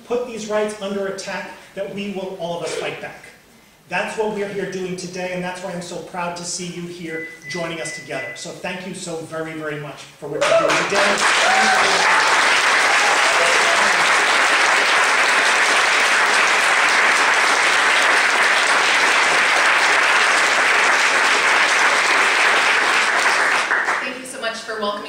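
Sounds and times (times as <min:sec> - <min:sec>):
audience applauding: 0:10.4 - 0:24.2.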